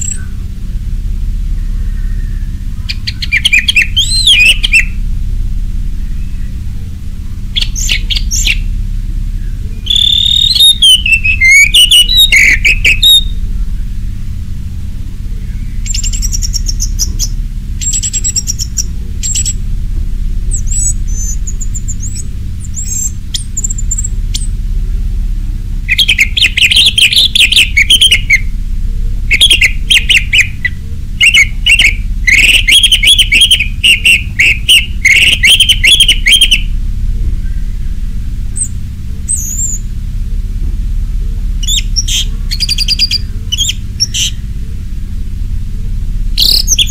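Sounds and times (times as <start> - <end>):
thrush singing: 0.0 - 24.5, 25.8 - 28.6, 29.3 - 36.8
steady low hum: 0.0 - 46.9.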